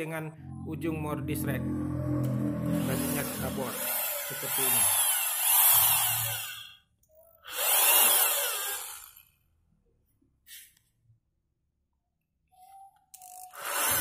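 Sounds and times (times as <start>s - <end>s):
electric drill boring into wood: 2.8s - 6.8s, 7.4s - 9.3s, 13.5s - 14.0s.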